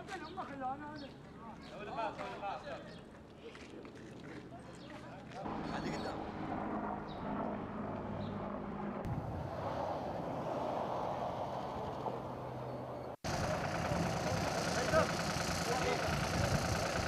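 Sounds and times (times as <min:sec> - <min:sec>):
engine humming: 0:05.5 - 0:17.0.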